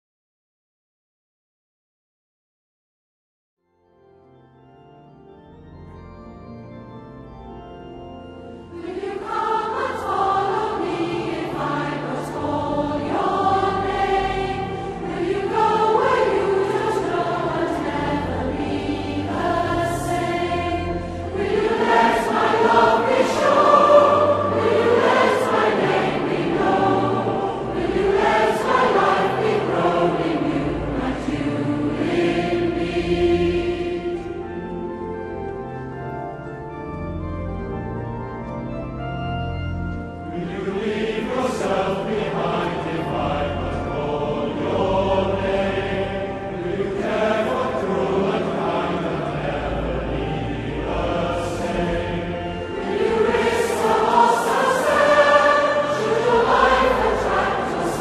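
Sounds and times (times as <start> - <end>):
choir singing a slow choral piece: 8.2 - 36.0, 39.9 - 58.0.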